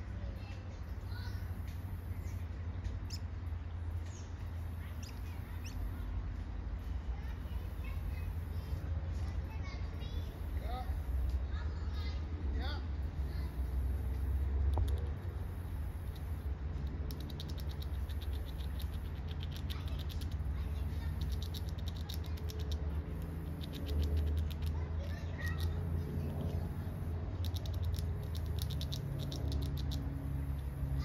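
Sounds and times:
squirrel gnawing nut shell: 13.5 - 31.0.

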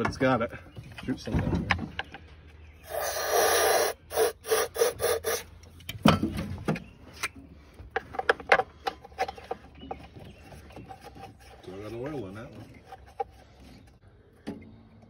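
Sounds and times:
aerosol can spraying: 2.9 - 5.4
clicks and knocks of handling parts: 5.6 - 11.2.

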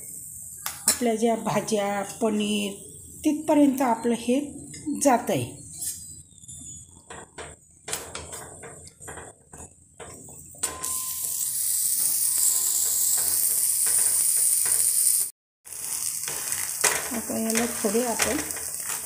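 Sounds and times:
flatbread sizzling in butter: 10.9 - 19.0.

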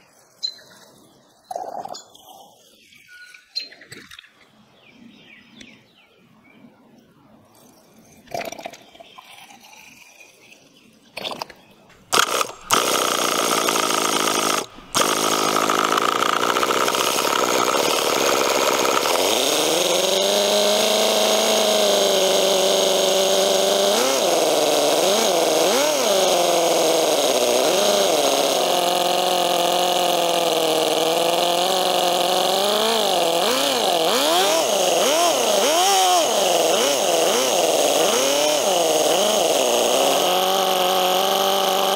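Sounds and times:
model engine revving: 11.2 - 41.9.

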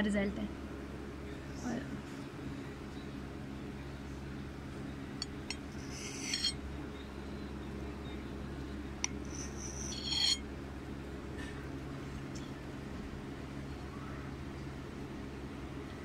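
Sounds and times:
steady low hum: 0.0 - 16.0
knife scraping ceramic plate: 5.5 - 6.6, 9.0 - 10.4.

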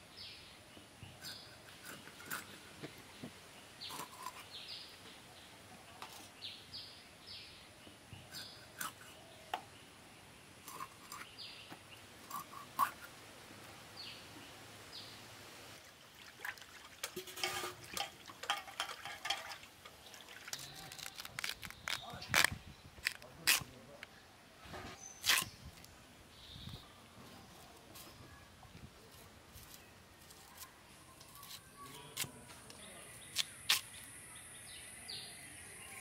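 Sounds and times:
small birds chirping: 0.0 - 13.2, 19.9 - 24.3, 25.0 - 36.0
water splashing in metal basin: 16.0 - 20.7
fish being cut on a blade: 25.2 - 25.5.

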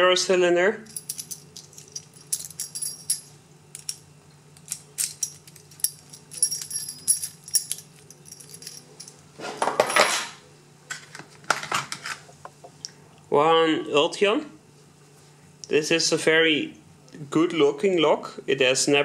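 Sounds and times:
metal lock cylinders clinking: 0.8 - 10.3
keys jangling: 0.9 - 4.0, 4.6 - 9.2.

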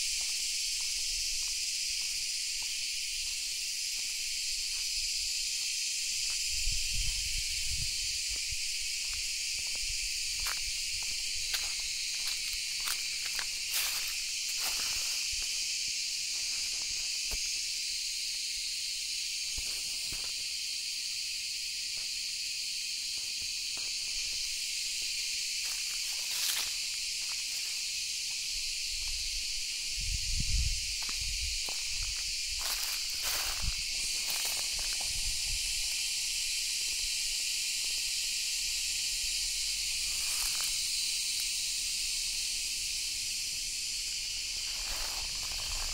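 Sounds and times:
high-pitched insect chorus: 0.0 - 45.9
footsteps on dry leaves: 0.1 - 17.2, 24.1 - 29.7, 30.8 - 36.1, 39.9 - 41.3, 44.1 - 45.9.

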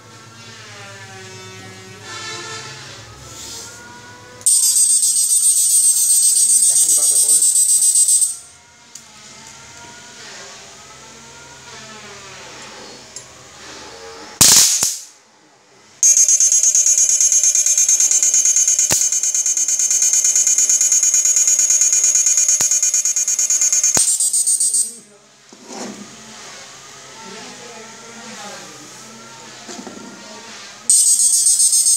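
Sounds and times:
high-pitched pulsing electrical buzz: 4.5 - 8.4, 16.0 - 25.0
electric arc crack: 14.4 - 15.1, 17.5 - 20.3.

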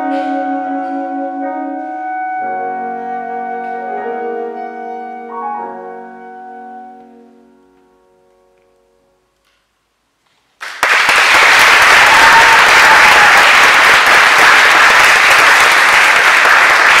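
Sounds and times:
saxophone notes: 0.0 - 9.5
audience applauding: 10.6 - 17.0.

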